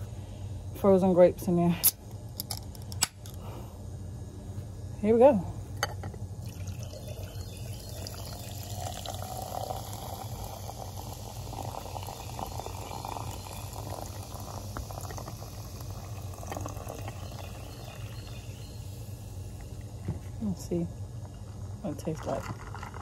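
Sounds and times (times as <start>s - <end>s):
water pouring into a glass jar: 6.4s - 18.8s, 21.9s - 23.0s
carbonation fizzing: 6.4s - 20.2s, 21.4s - 23.0s.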